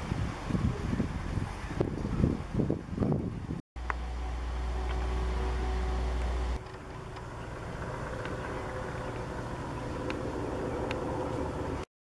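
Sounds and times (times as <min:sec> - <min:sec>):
steady low rumble: 0:00.0 - 0:11.9
soft steady hum: 0:03.8 - 0:11.8.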